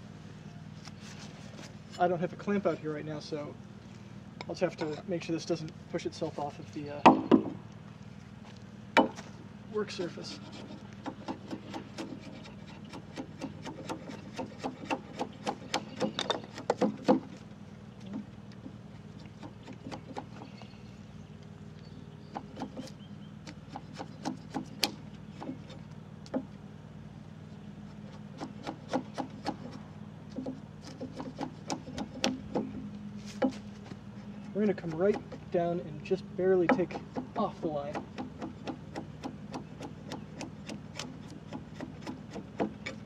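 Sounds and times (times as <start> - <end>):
wood fibres crackling under chisel: 10.1 - 20.6, 27.9 - 43.0.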